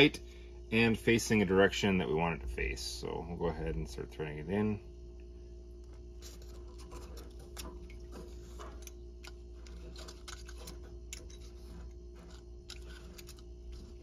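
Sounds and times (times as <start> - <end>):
steady low hum: 0.0 - 14.0
valve clicking and scraping on pipe: 6.2 - 14.0.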